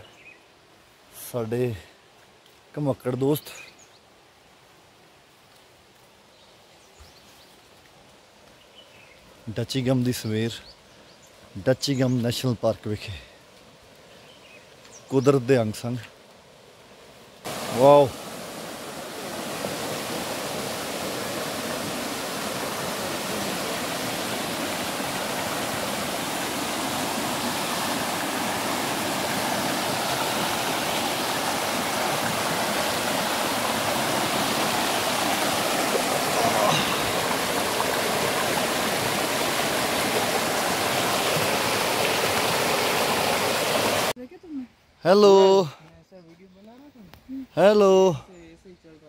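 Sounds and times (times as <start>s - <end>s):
stream rushing over rocks: 11.4s - 44.2s.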